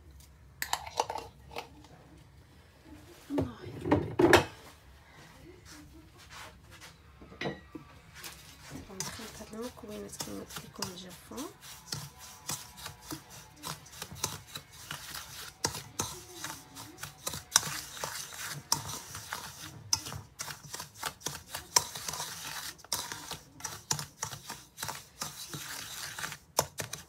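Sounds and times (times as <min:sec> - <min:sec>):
spoon scraping metal bowl: 0:08.2 - 0:27.0.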